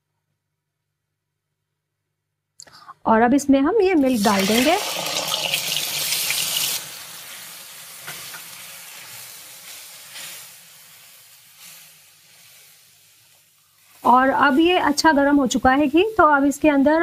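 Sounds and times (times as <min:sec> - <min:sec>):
milk sizzling in hot fat: 0:04.0 - 0:16.8.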